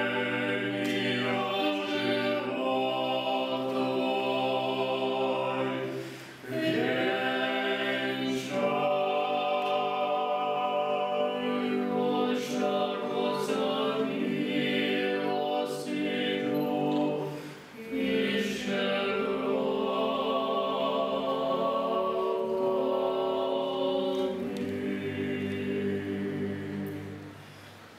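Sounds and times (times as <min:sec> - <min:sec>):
choir singing a cappella: 0:00.0 - 0:27.8.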